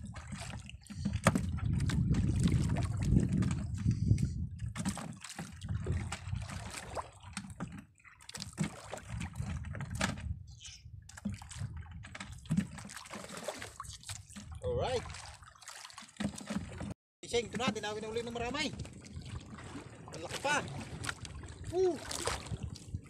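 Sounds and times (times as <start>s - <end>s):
water sloshing against boat hull: 0.0s - 23.0s.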